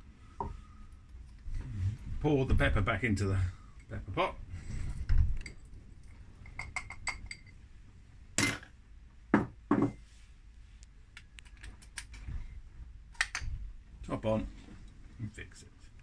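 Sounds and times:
bowl and mill knocking on wood: 9.3s - 10.0s.

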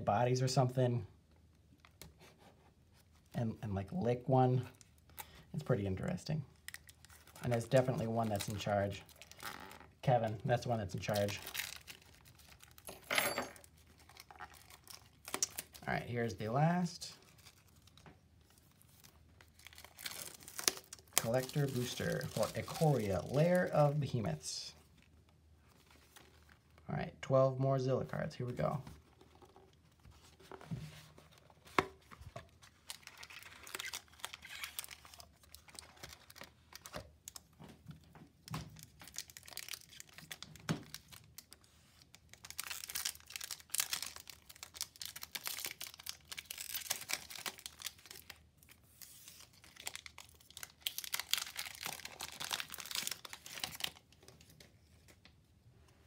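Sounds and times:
wrappers crinkling and tearing: 6.6s - 13.0s, 13.6s - 16.1s, 17.1s - 24.1s, 32.4s - 37.6s, 38.7s - 54.7s.

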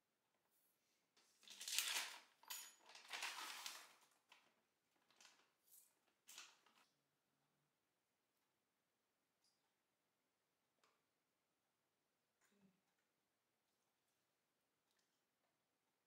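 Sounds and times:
plastic bag crinkling: 1.4s - 6.8s.

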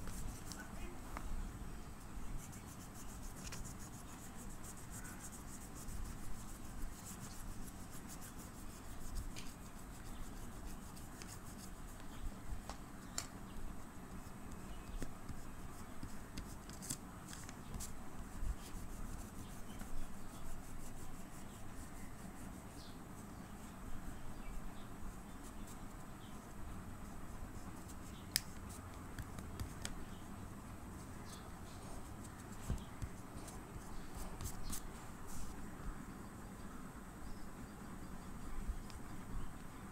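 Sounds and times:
pastel scraping on paper: 2.4s - 12.2s, 14.9s - 22.8s.

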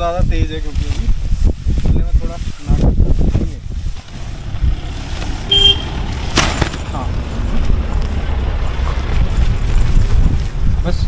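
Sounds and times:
wind rumbling on microphone: 0.0s - 11.0s
short high beep: 5.5s - 5.9s.

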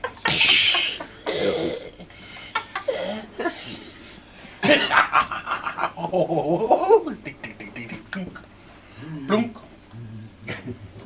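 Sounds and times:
breathy cough: 1.2s - 1.9s.

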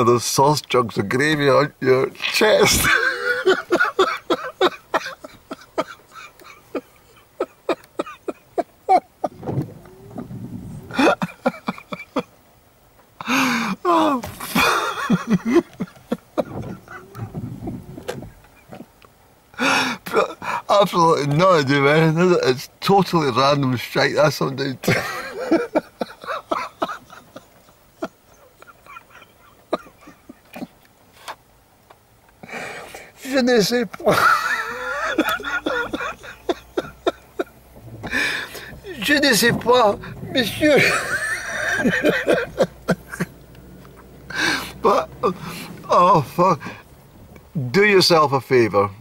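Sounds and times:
man laughing: 2.4s - 9.4s, 10.0s - 12.4s, 13.2s - 17.7s, 24.8s - 30.8s, 34.0s - 43.4s, 44.3s - 46.8s.

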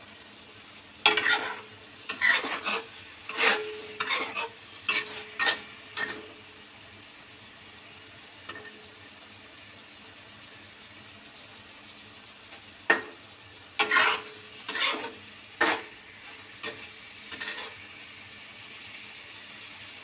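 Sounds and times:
faint steady hiss: 0.0s - 20.0s
metal spatula scraping a wok: 1.0s - 6.4s, 13.8s - 17.8s.

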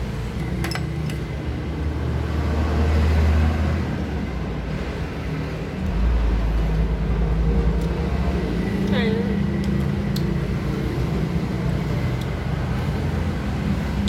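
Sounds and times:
low background rumble: 4.7s - 12.3s.

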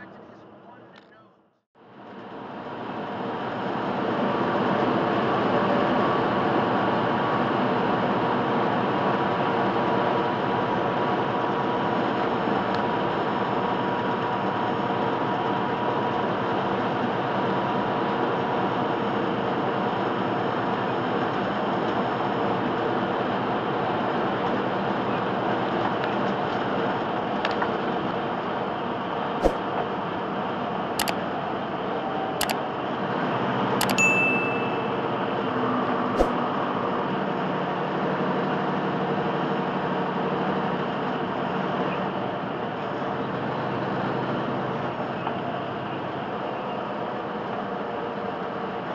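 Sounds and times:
truck engine drone: 1.8s - 48.9s
road noise: 16.2s - 48.9s
mouse clicks: 33.8s - 34.0s
bell ding: 33.8s - 35.4s.

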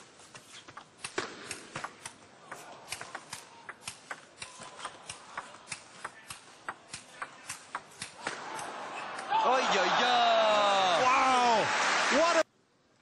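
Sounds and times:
table tennis ball clicking: 2.9s - 8.2s.

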